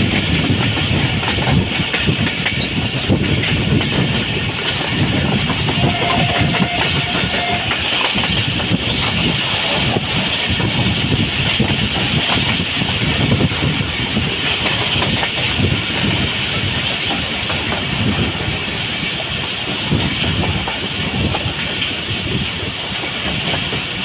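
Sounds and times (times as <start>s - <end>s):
train wheels rumbling on rails: 0.0s - 24.0s
wheels clicking over rail joints: 0.0s - 24.0s.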